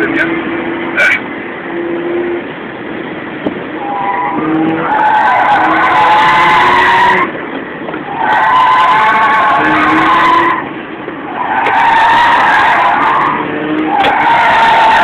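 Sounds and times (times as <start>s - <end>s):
tyres squealing: 11.3s - 15.0s.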